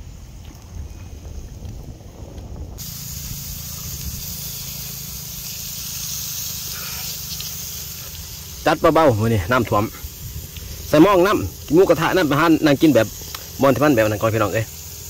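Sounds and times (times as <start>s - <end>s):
low rumble: 0.0s - 5.3s
meat sizzling on grill: 2.8s - 15.0s.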